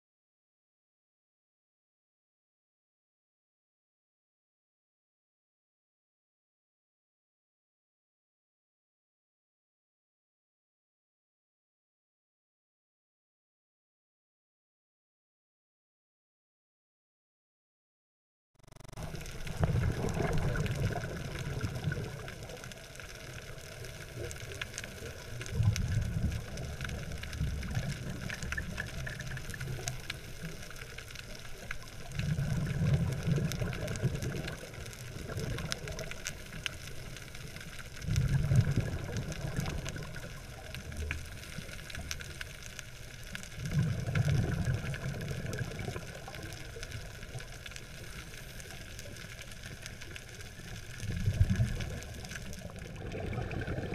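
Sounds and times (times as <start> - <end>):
faint underwater crackle: 18.6 - 53.9
diver's exhaled bubbles rushing: 19.0 - 22.7, 32.1 - 36.1, 38.0 - 40.4, 43.6 - 46.2, 51.0 - 53.9.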